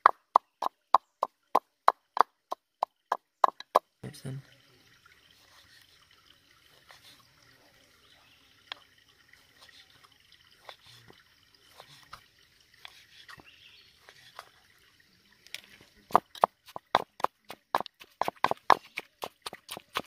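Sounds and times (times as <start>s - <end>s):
faint trickle of water: 0.8s - 17.4s
knife chopping on cutting board: 16.2s - 20.0s.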